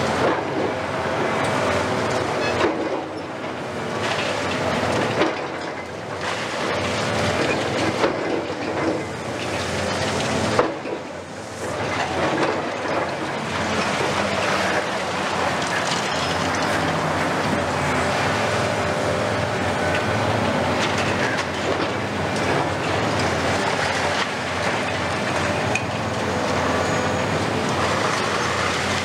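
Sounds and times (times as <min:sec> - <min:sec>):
masonry crunching and clattering: 0:03.9 - 0:18.8, 0:19.7 - 0:26.3
steady squeal: 0:26.4 - 0:28.6.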